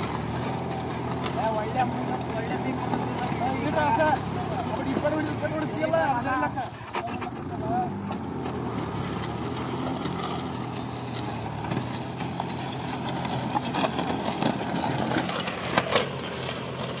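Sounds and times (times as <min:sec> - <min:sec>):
tractor engine running: 0:00.0 - 0:17.0
sharp clicks and knocks: 0:06.8 - 0:08.6.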